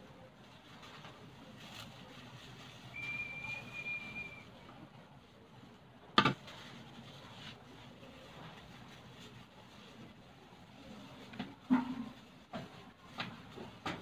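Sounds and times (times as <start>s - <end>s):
thin whistle-like tone: 2.9s - 4.6s.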